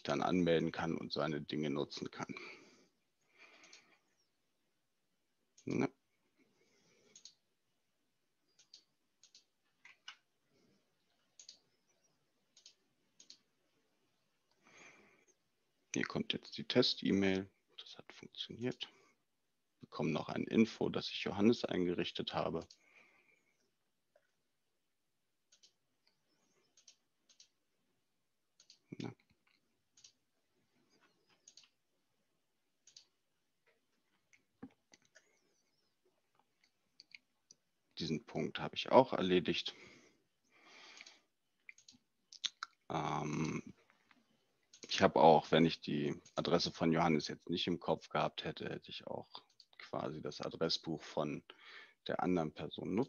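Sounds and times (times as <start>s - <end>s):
computer mouse clicks: 3.6s - 3.9s, 7.0s - 7.4s, 8.5s - 10.3s, 11.0s - 13.5s, 25.5s - 27.6s, 28.6s - 30.2s, 31.0s - 31.8s, 32.8s - 33.2s, 40.9s - 42.8s, 44.6s - 44.9s, 49.4s - 49.8s.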